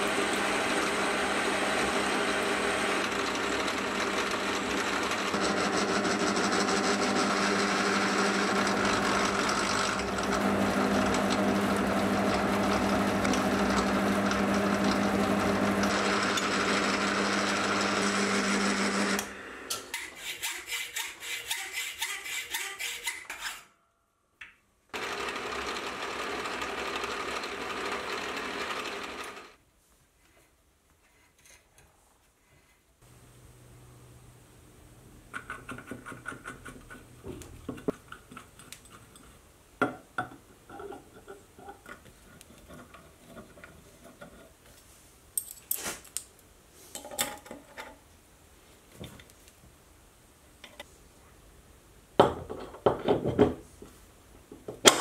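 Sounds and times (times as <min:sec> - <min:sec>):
metal lathe humming: 0:00.0 - 0:19.7, 0:25.0 - 0:29.6.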